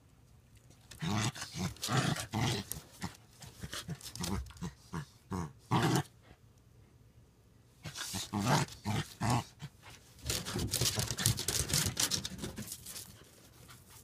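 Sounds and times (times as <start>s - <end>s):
dogs growling: 0.9s - 6.1s, 7.8s - 12.0s.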